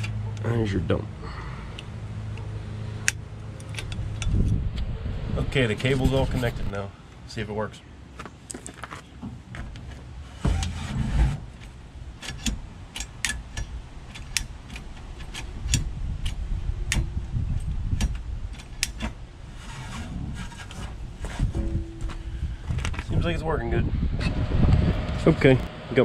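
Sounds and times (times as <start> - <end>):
sharp metallic ticks: 12.2 - 17.0.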